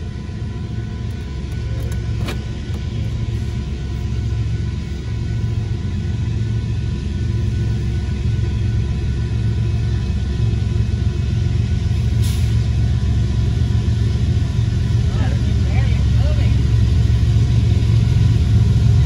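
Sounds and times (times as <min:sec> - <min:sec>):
car cabin rumble: 0:01.0 - 0:03.7.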